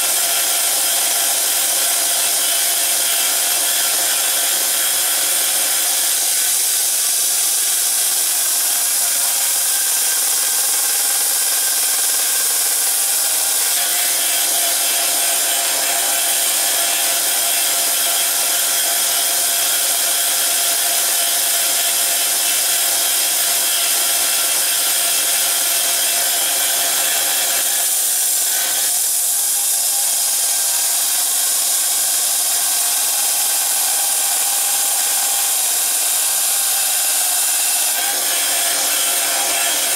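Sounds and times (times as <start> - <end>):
belt sander running: 0.0 - 39.9
metal grinding on sanding belt: 0.0 - 39.9.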